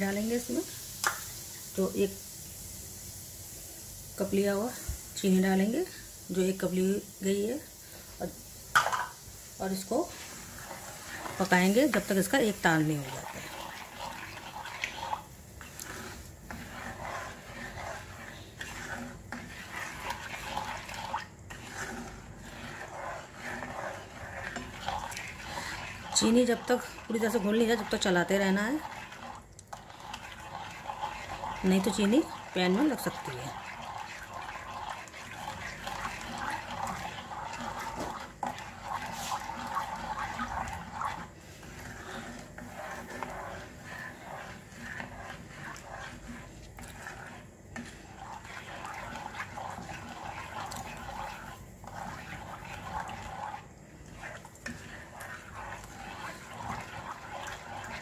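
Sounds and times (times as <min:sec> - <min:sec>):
spoon scraping sugar in a pan: 0:04.2 - 0:58.0
liquid swishing: 0:06.6 - 0:58.0.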